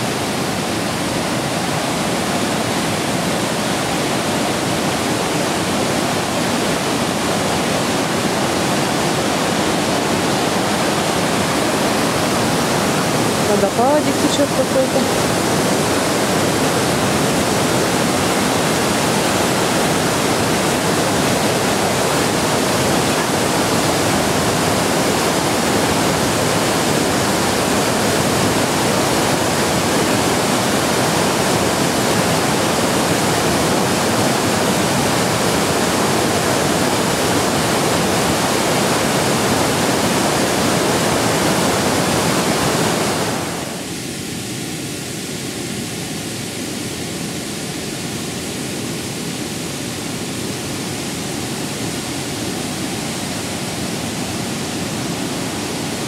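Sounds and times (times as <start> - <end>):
small waterfall rushing: 0.0 - 56.0.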